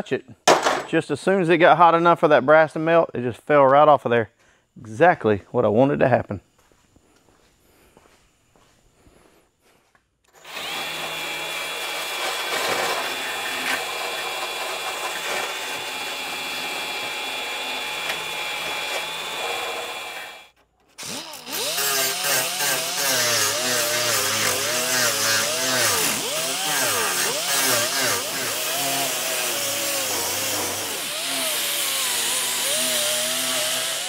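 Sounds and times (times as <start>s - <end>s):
die grinder on sheet steel: 10.4s - 34.0s.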